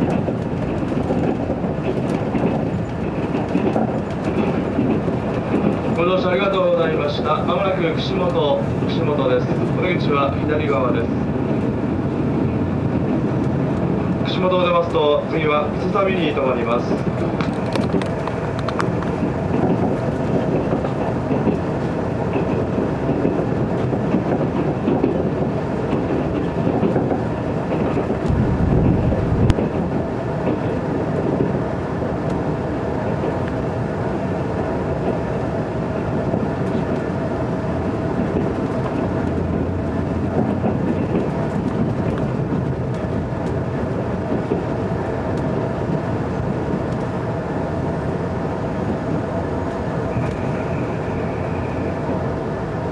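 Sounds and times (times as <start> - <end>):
train wheels rumbling on rails: 0.0 - 52.9.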